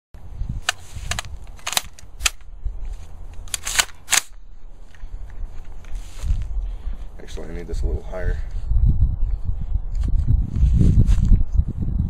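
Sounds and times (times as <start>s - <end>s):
rifle metallic clicks: 0.6s - 2.5s, 3.3s - 5.0s.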